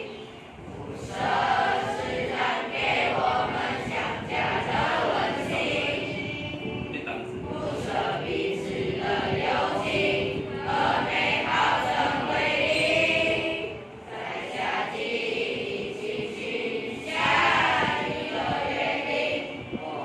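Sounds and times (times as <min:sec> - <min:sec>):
children's choir singing: 0:00.0 - 0:20.0.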